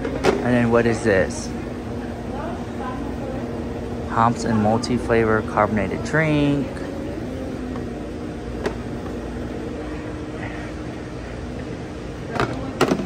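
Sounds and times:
ventilation and refrigeration hum: 0.0s - 13.0s.

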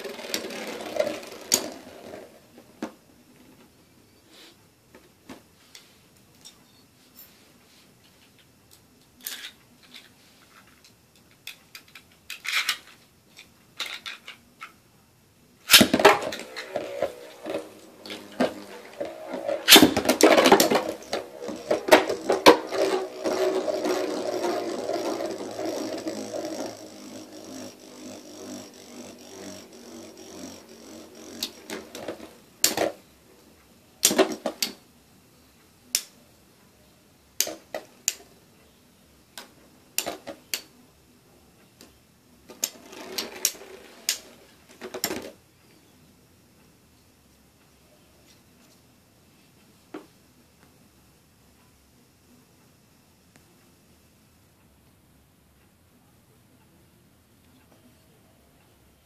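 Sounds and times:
spinning tops clashing: 0.0s - 2.4s, 15.7s - 33.0s
spinning tops grinding rattle: 0.0s - 2.5s, 15.7s - 33.0s, 42.5s - 45.3s.

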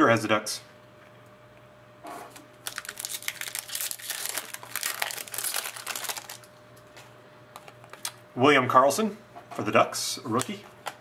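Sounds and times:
foil wrapper tearing and crinkling: 2.6s - 6.5s.

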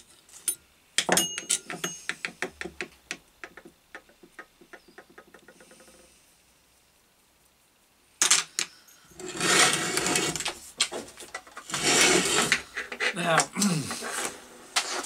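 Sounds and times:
metal parts rattling and scraping: 8.2s - 13.4s.

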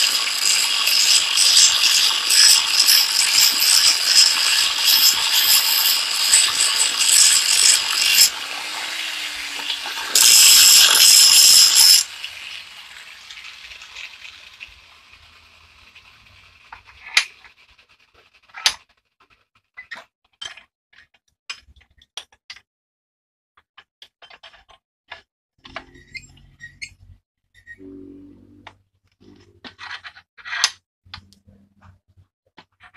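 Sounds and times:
angle grinder cutting steel: 0.0s - 17.3s.

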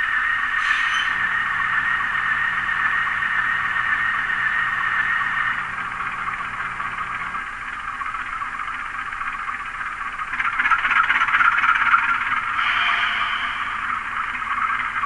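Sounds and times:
buzzy diesel engine from small speaker: 0.0s - 15.0s
high steady tone: 12.0s - 15.0s.

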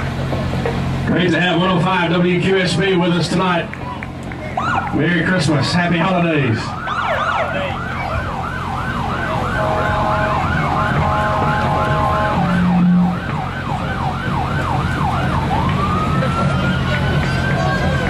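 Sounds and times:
electronic siren yelping and wailing: 6.0s - 18.0s
steady three-note tone: 9.3s - 13.5s.

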